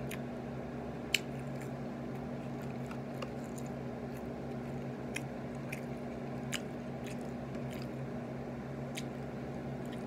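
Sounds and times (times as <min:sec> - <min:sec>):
person chewing: 0:00.0 - 0:00.3, 0:01.0 - 0:08.2, 0:08.8 - 0:10.0
steady low hum: 0:00.0 - 0:10.0.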